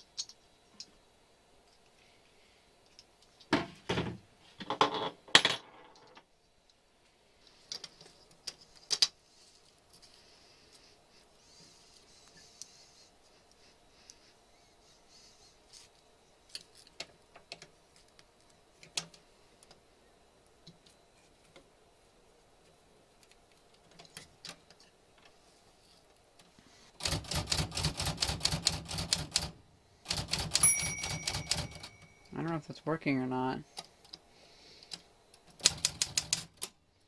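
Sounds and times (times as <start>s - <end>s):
typewriter bell ringing: 30.5s - 32.4s.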